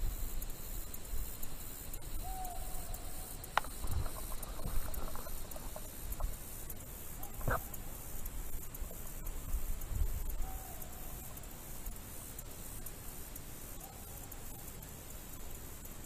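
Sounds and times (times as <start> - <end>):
distant hounds baying: 7.2 - 8.2, 10.2 - 11.5, 13.7 - 14.8.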